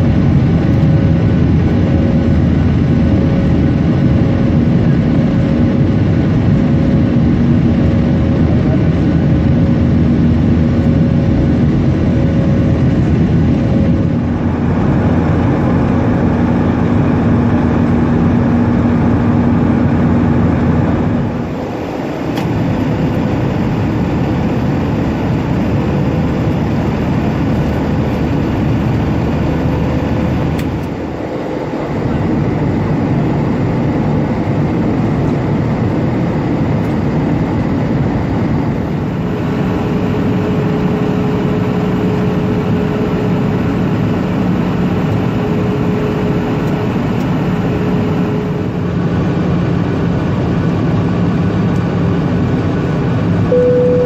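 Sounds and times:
jet cabin engine drone: 0.0s - 54.0s
faint steady hum: 53.5s - 54.0s.

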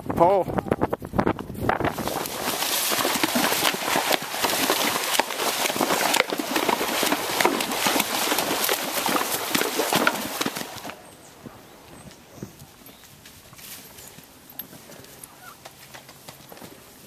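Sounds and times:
horse hoofbeats on leaves: 1.8s - 17.0s
dry leaves crunching and rustling: 1.9s - 9.3s.

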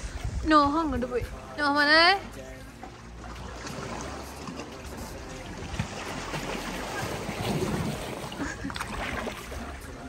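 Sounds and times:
wind on microphone: 0.0s - 2.2s
waves lapping on rocks: 2.4s - 10.0s.

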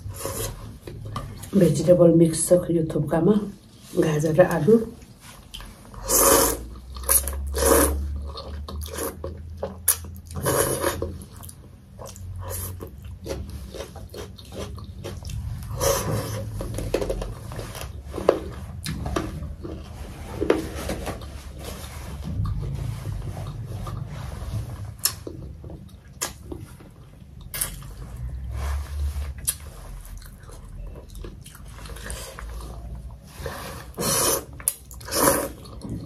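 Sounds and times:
person slurping and chewing noodles: 0.0s - 1.5s, 5.4s - 36.0s.

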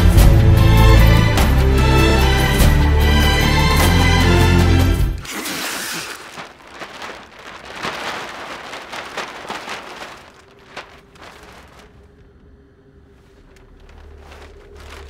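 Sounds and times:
plastic sheeting crinkling: 5.2s - 12.5s, 13.2s - 15.0s.

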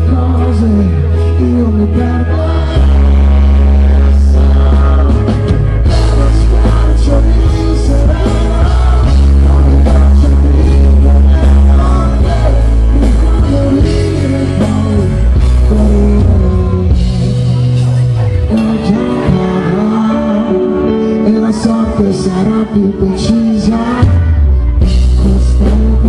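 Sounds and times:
heavy bass line: 0.0s - 26.0s
keyboards: 0.0s - 26.0s
man singing: 0.0s - 26.0s.

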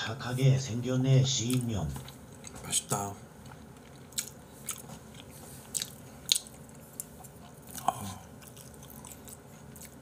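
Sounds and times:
person chewing: 1.5s - 2.8s, 3.4s - 10.0s.

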